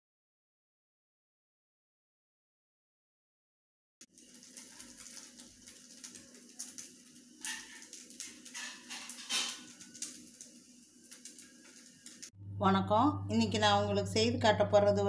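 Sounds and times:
low steady hum: 11.7s - 15.0s.

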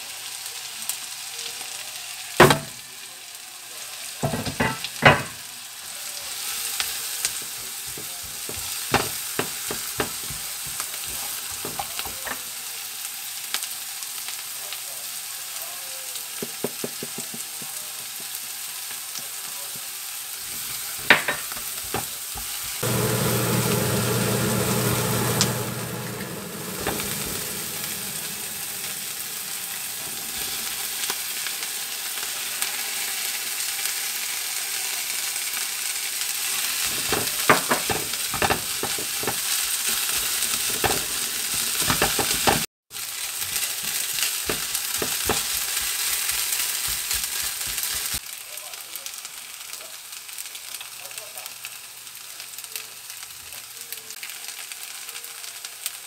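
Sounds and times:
vegetables sizzling in butter: 0.0s - 56.0s
spatula stirring and knocking pan: 4.2s - 5.4s, 7.3s - 12.4s, 16.4s - 18.4s, 20.6s - 30.5s, 36.8s - 42.7s, 43.4s - 48.2s
steady low hum: 22.8s - 29.5s.

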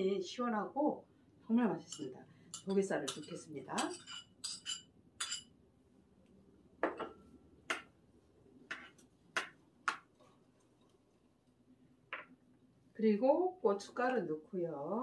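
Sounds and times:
spoon clinking against bowl: 1.9s - 5.5s.

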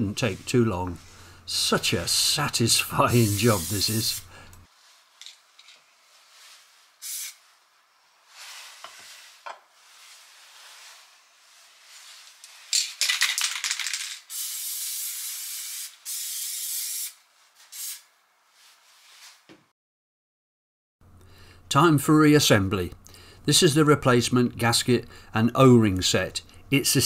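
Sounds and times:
spray paint can hissing: 3.0s - 4.3s, 7.0s - 7.4s, 14.2s - 18.0s
spray can rattling when shaken: 7.0s - 7.4s, 12.4s - 18.0s.

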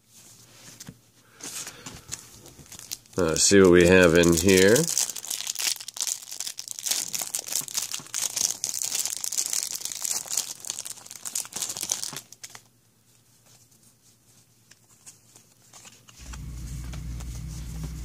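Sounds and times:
wrapper crinkling and tearing: 2.2s - 12.7s
cards pulled out: 14.7s - 18.0s.

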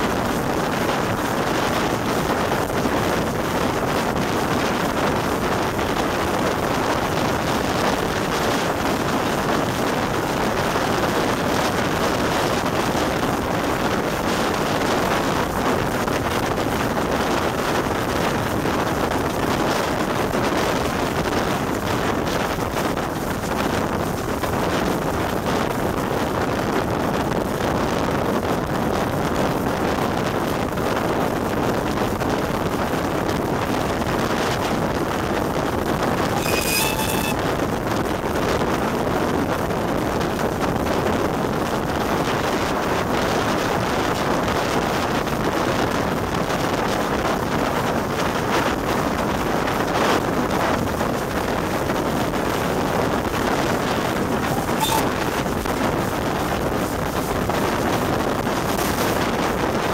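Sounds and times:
wind on microphone: 0.0s - 37.4s, 38.6s - 59.9s
brief high-pitched tone: 36.3s - 37.4s, 54.4s - 55.3s.

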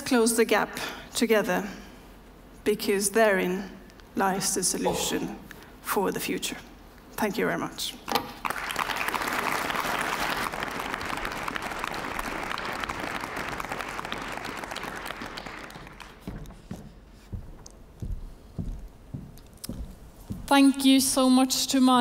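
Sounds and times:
audience applauding: 8.4s - 16.4s
soft thumps: 16.2s - 20.5s.

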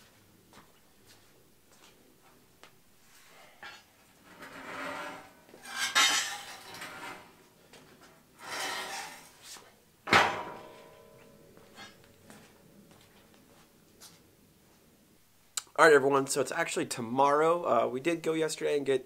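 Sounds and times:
metal rack scraping on concrete: 4.2s - 7.4s, 8.4s - 9.6s
loud metallic clang: 10.1s - 12.0s.

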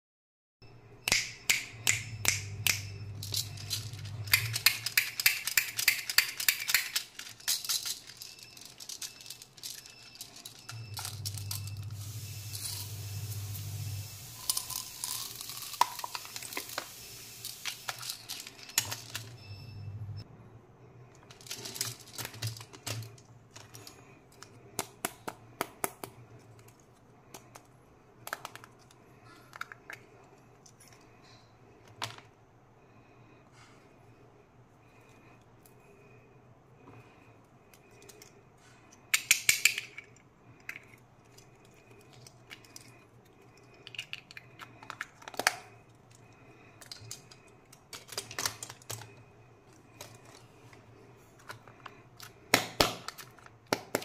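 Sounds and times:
plastic candy toys clicking and rattling: 2.6s - 12.9s, 14.4s - 19.5s, 21.1s - 31.1s, 37.7s - 54.0s
hiss: 12.0s - 15.0s.

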